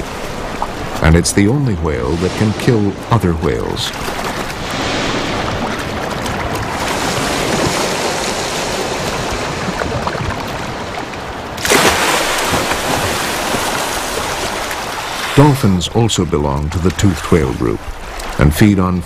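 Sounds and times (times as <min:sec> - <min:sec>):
sea water washing: 0:00.0 - 0:19.0
orca splashing into water: 0:11.6 - 0:15.6.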